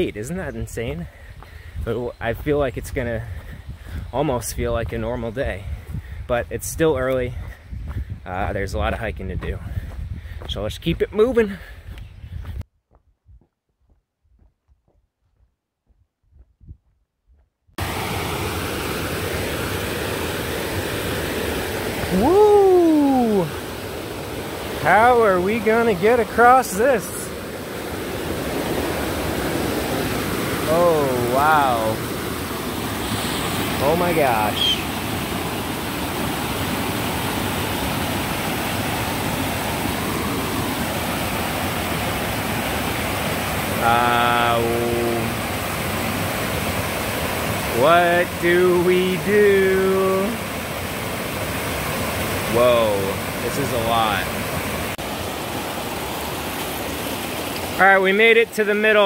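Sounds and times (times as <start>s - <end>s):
stream rushing over rocks: 17.8s - 59.0s
person exclaiming: 22.0s - 23.7s, 30.6s - 32.0s.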